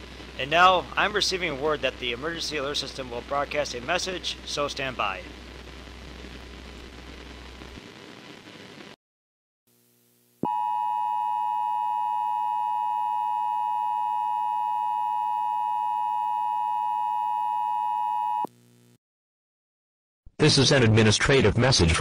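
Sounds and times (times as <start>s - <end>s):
faint steady hiss: 0.0s - 9.0s
loud steady electronic tone: 10.4s - 19.0s.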